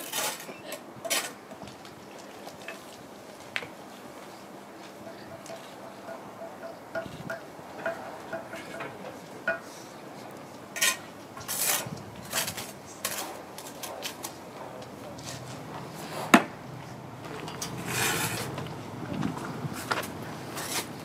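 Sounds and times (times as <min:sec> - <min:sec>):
trowel scraping mortar: 0:00.0 - 0:01.4, 0:10.8 - 0:14.3, 0:17.5 - 0:18.6, 0:19.8 - 0:21.0.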